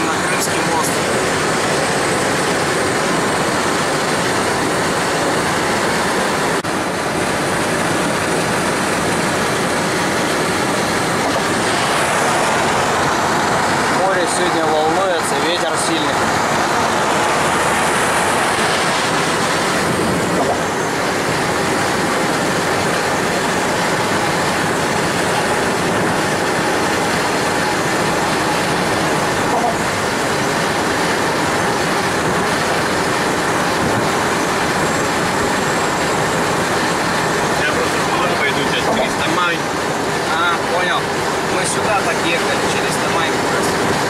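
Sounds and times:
road and wind noise: 0:00.0 - 0:44.0.

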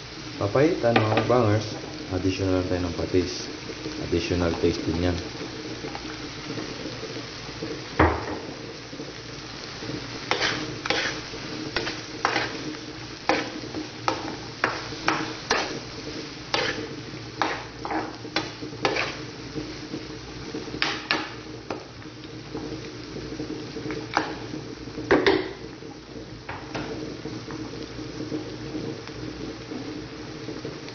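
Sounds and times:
sauce sizzling: 0:00.0 - 0:30.9
metal spatula scraping a pan: 0:10.2 - 0:19.3.

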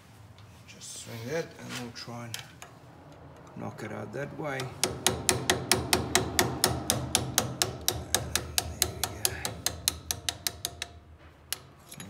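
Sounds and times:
hammer tapping metal punch: 0:04.5 - 0:12.0.

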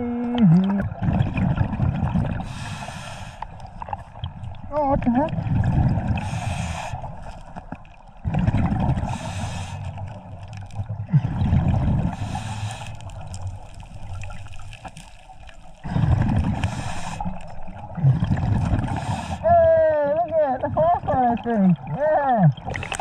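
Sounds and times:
exhaled bubbles gurgling underwater: 0:00.0 - 0:23.0
regulator hissing inhales: 0:02.4 - 0:03.5, 0:12.1 - 0:13.1, 0:16.6 - 0:17.5.

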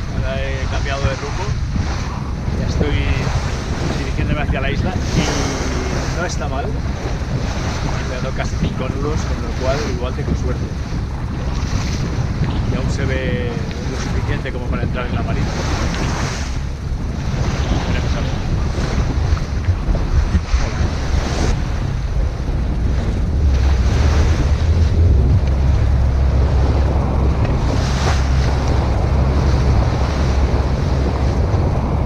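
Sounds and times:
waves rushing along hull: 0:00.0 - 0:32.0
wind buffeting microphone: 0:00.0 - 0:32.0.

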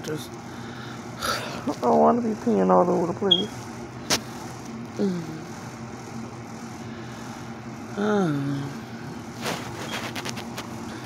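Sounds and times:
steady low hum: 0:00.0 - 0:11.0
woman murmuring: 0:05.0 - 0:05.6, 0:07.9 - 0:09.0.

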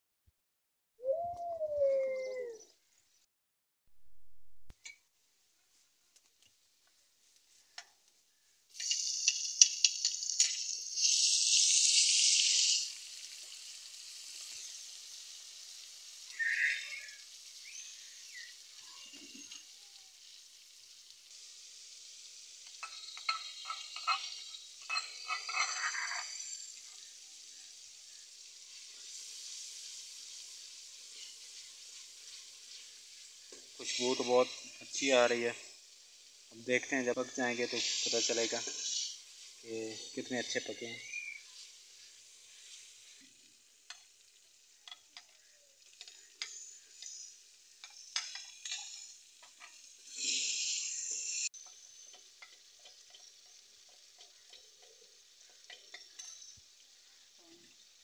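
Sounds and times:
vegetables sizzling in oil: 0:04.8 - 0:58.0
metal spoon scraping pot: 0:22.8 - 0:26.6.

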